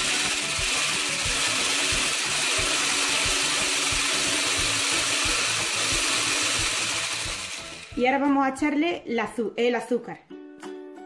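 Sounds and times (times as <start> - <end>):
stick blender whisking eggs: 0.0 - 8.3.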